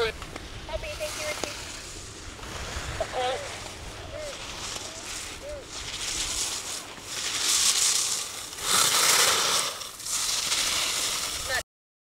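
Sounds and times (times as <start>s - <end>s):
skis scraping hard snow: 0.0s - 11.6s.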